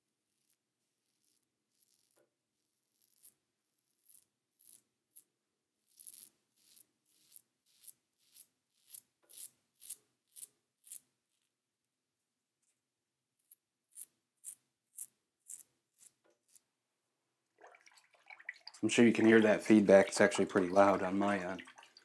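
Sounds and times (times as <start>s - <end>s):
razor scraping stubble: 0.3s - 2.2s, 2.8s - 11.1s, 13.5s - 16.7s.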